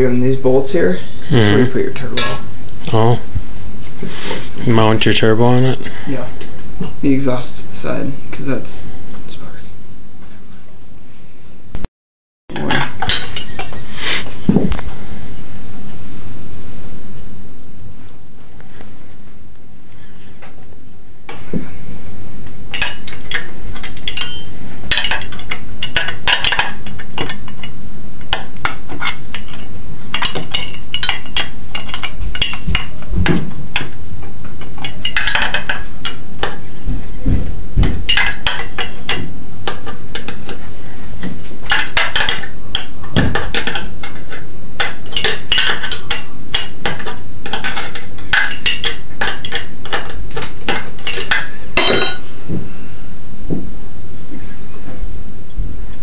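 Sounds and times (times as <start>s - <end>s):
dull thuds: 33.1s - 33.6s, 36.9s - 38.1s
tools and metal parts clinking: 51.1s - 52.3s.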